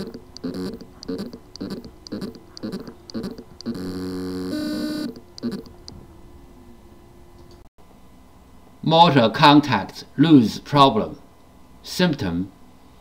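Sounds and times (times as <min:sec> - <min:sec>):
hard drive pulsing chirps: 0:00.0 - 0:06.0
hard drive buzzing whine: 0:00.0 - 0:08.8.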